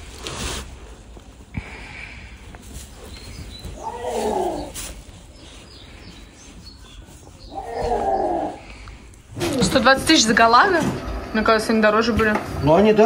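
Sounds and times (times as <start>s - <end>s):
animal calling: 3.0s - 9.8s.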